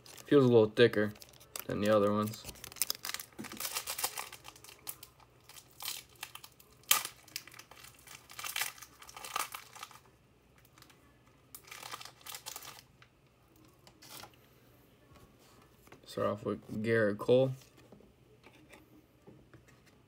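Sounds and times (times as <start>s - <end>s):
plastic wrapper tearing and crinkling: 0.0s - 10.9s, 11.5s - 13.0s.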